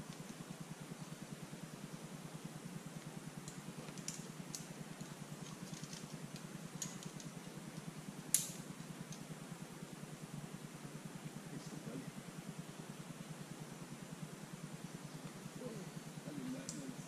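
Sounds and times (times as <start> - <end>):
steady low hum: 0.0 - 17.0
climbing gear clicking and clinking: 3.4 - 7.4.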